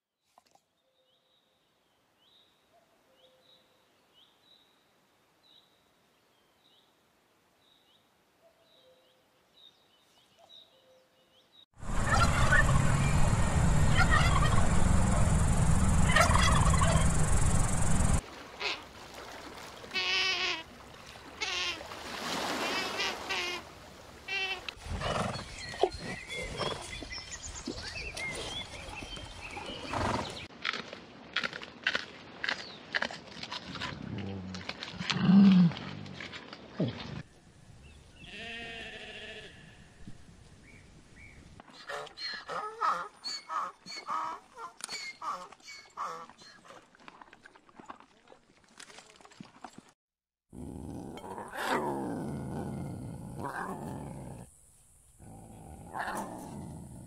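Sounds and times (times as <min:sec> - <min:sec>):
small birds chirping: 0:10.0 - 0:18.2
horse snorting: 0:24.8 - 0:26.9, 0:50.5 - 0:54.5, 0:55.2 - 0:57.0
background hiss: 0:52.8 - 0:57.0.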